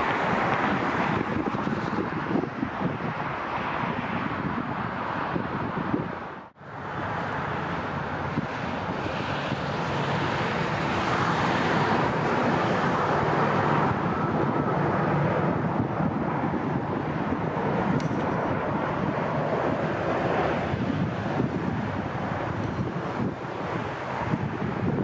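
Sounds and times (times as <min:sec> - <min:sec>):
jet engines rumbling: 0:00.0 - 0:25.0
wind on microphone: 0:00.0 - 0:25.0.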